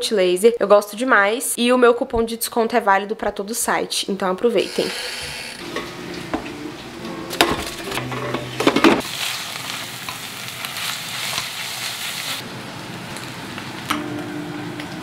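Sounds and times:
meat sizzling in a pot: 0:09.0 - 0:13.9.

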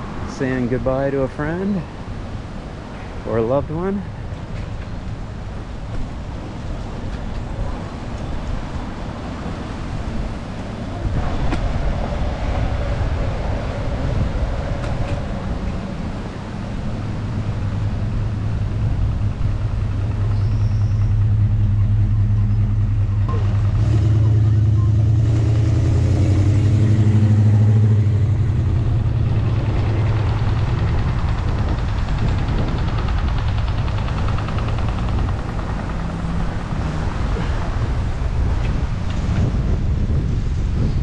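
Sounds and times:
road noise rushing: 0:00.0 - 0:41.0
vehicle engine hum: 0:00.0 - 0:41.0.

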